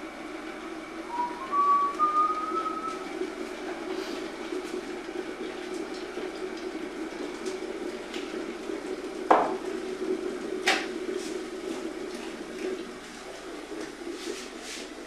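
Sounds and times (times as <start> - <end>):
electric kettle heating water: 0.0 - 15.0
mug clunk on wooden table: 9.3 - 9.6.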